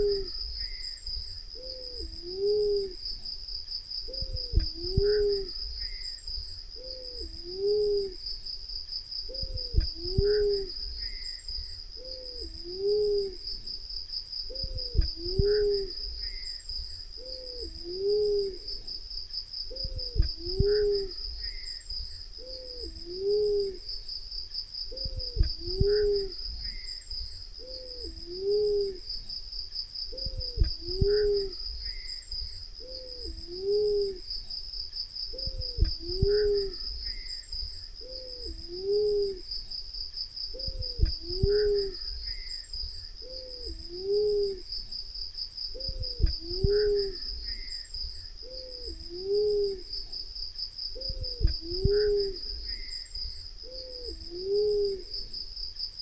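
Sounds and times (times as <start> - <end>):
dove cooing: 0.0 - 0.8, 1.6 - 3.0, 4.1 - 6.0, 6.8 - 8.3, 9.3 - 11.3, 12.0 - 13.7, 14.5 - 16.5, 17.2 - 19.0, 19.7 - 21.7, 22.4 - 23.9, 24.9 - 26.9, 27.6 - 29.1, 30.1 - 32.1, 32.8 - 34.3, 35.3 - 37.3, 38.0 - 39.5, 40.5 - 42.4, 43.2 - 44.7, 45.7 - 47.7, 48.4 - 50.2, 50.9 - 52.9, 53.6 - 55.4.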